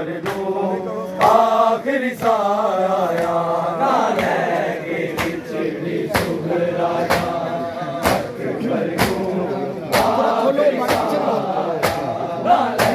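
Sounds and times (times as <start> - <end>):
crowd of men chanting: 0.0 - 12.9.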